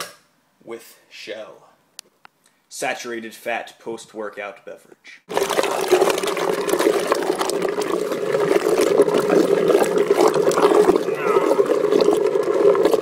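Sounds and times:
liquid sloshing: 0:05.3 - 0:13.0.

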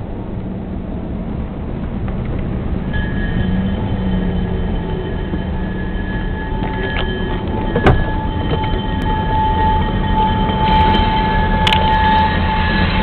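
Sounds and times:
car road rumble: 0:00.0 - 0:13.0
high-pitched tones: 0:02.9 - 0:13.0.

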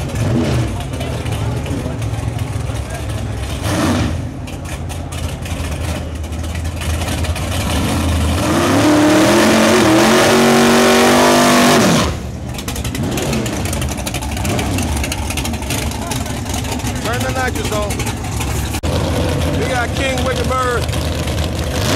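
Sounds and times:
drag car engine revving: 0:00.0 - 0:21.9
tyres spinning in burnout: 0:00.0 - 0:21.9.

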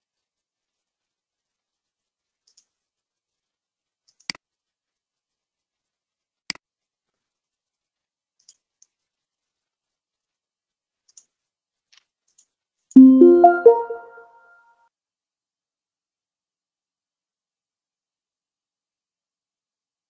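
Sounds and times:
computer mouse clicks: 0:11.1 - 0:11.3
computer alert chime: 0:13.0 - 0:14.3.

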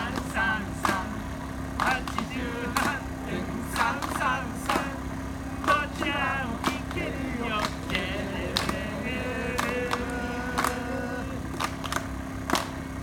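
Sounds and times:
sharp clacks: 0:00.0 - 0:01.2, 0:01.8 - 0:03.0, 0:03.7 - 0:05.0, 0:05.6 - 0:07.0, 0:09.5 - 0:10.9, 0:11.5 - 0:12.8
people singing: 0:00.0 - 0:11.6
steady low hum: 0:00.0 - 0:13.0.

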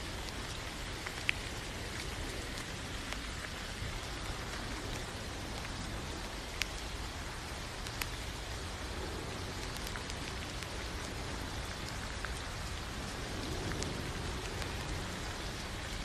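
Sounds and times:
steady rain hissing: 0:00.0 - 0:16.0.

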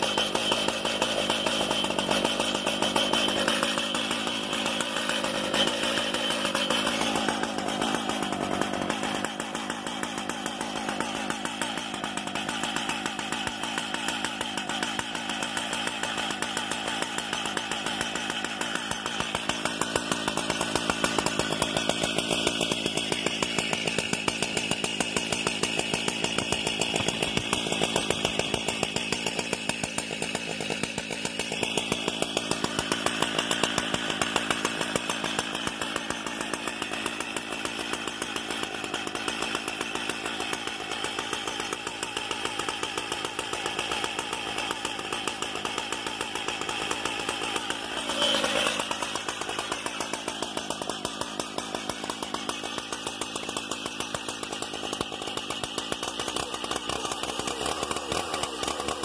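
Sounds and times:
chainsaw engine idling: 0:00.0 - 0:59.0.

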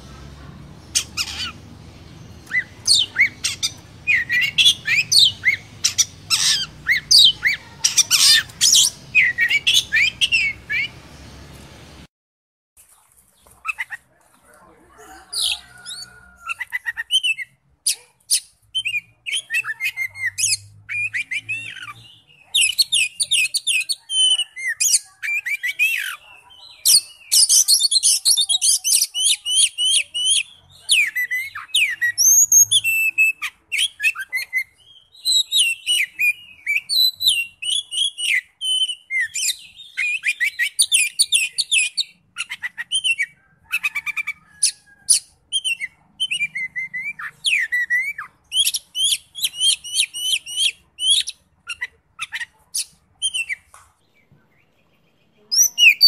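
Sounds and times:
bird singing whistles and trills: 0:02.3 - 0:11.0, 0:31.0 - 0:43.4, 0:44.6 - 0:52.4, 0:55.5 - 0:56.0.

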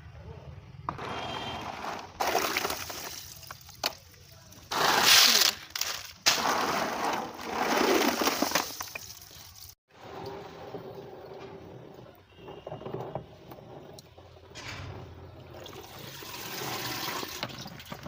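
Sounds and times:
walnuts clattering in colander: 0:07.7 - 0:09.8.

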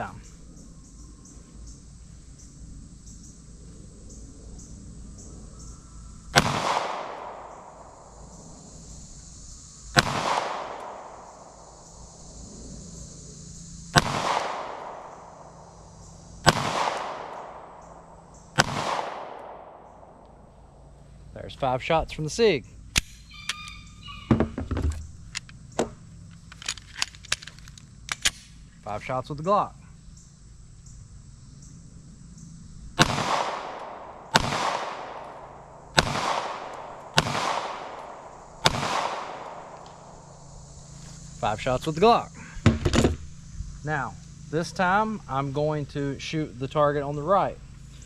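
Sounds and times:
pistol shots with echo: 0:06.4 - 0:07.8, 0:10.0 - 0:11.2, 0:14.0 - 0:15.2, 0:16.4 - 0:17.8, 0:18.6 - 0:19.8, 0:33.0 - 0:39.8.

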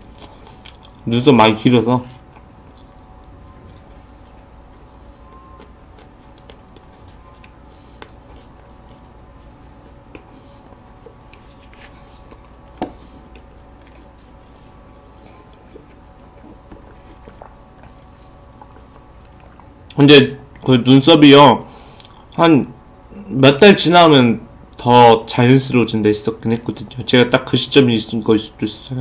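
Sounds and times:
chewing soft cake: 0:00.0 - 0:20.9, 0:21.8 - 0:22.4, 0:24.4 - 0:29.0
faint steady hum: 0:00.0 - 0:29.0
wet mouth clicks: 0:15.6 - 0:19.8.

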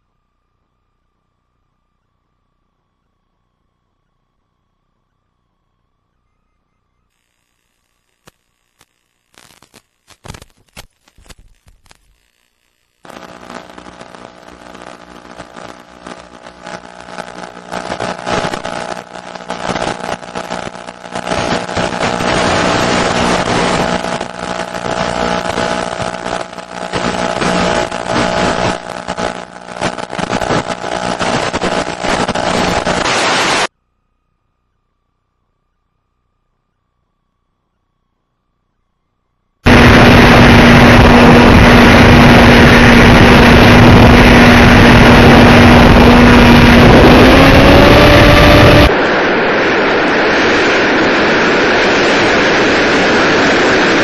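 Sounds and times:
radio static crackles: 0:07.1 - 0:33.7, 0:39.6 - 0:54.0
motor and propeller droning: 0:12.2 - 0:54.0
loud rushing noise: 0:39.7 - 0:54.0.

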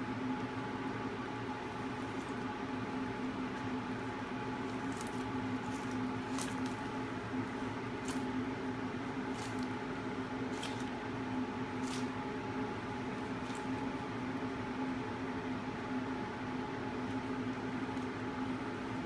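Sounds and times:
steady background hum: 0:00.0 - 0:19.0
egg crushing in jaws: 0:01.5 - 0:14.3.

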